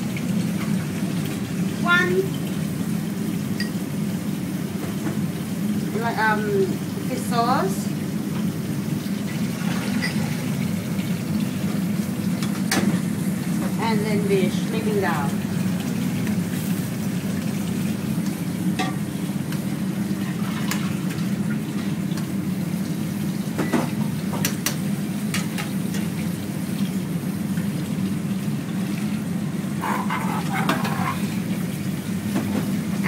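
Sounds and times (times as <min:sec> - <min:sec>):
soup bubbling and sizzling: 0:00.0 - 0:33.0.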